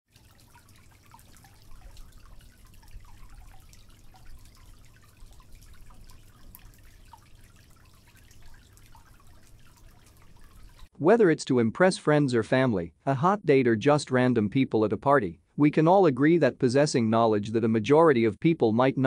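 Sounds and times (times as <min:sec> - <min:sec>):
water trickling: 0:00.0 - 0:10.9
water dripping: 0:00.1 - 0:10.9.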